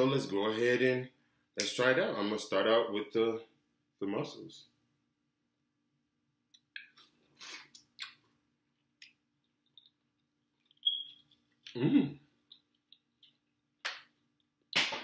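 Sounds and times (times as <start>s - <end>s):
mouth smacks and clicks eating: 6.5s - 8.2s, 9.0s - 11.8s, 12.4s - 14.8s
person humming: 11.7s - 12.2s.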